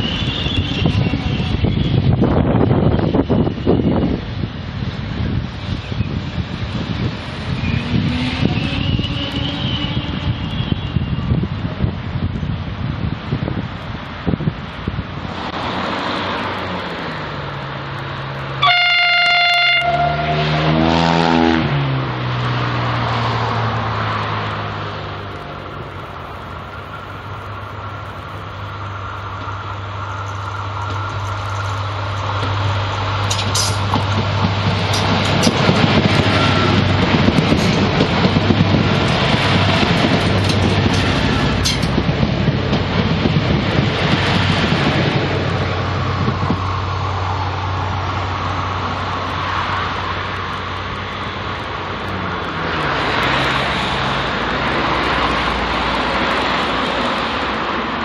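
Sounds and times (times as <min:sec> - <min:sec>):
train engine drone: 0:00.0 - 0:58.0
train horn: 0:07.6 - 0:11.2, 0:18.6 - 0:21.6
wheel-on-rail clicks: 0:30.2 - 0:43.1.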